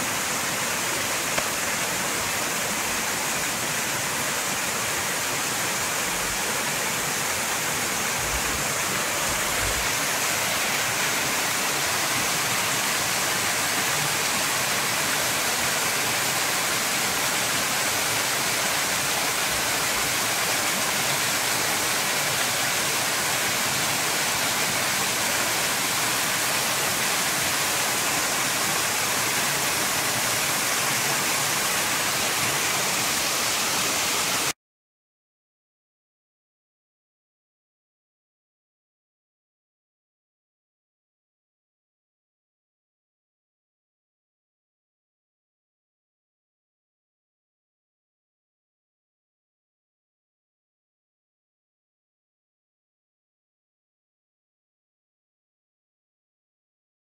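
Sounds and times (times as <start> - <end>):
waterfall rushing over rocks: 0.0 - 34.6.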